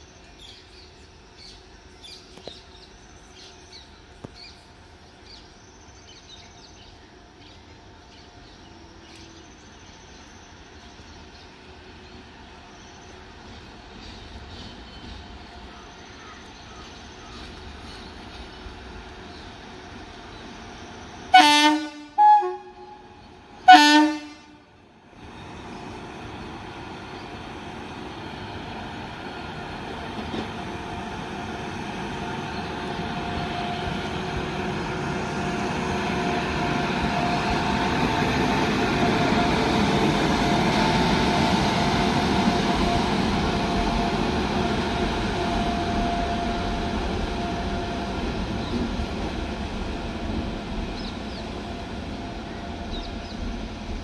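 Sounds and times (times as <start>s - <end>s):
locomotive horn blasts: 21.3s - 24.7s
locomotive rumble with whine: 24.4s - 54.0s.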